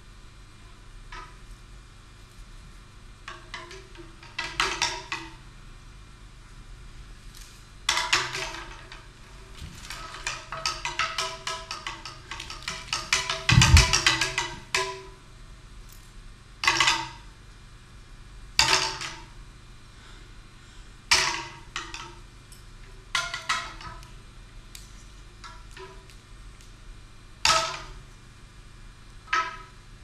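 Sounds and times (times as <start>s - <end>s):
percussion strikes ringing: 13.2s - 14.8s.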